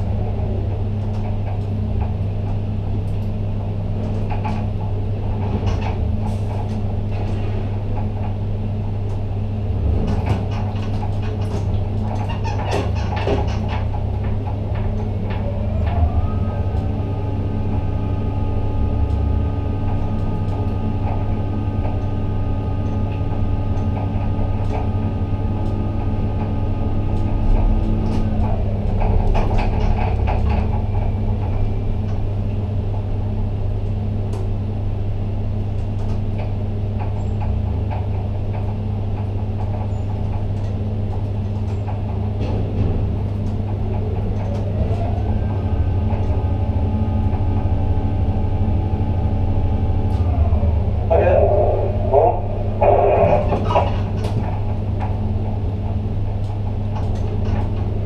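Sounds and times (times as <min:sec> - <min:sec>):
electric motor hum and whine: 0:43.5 - 0:58.0.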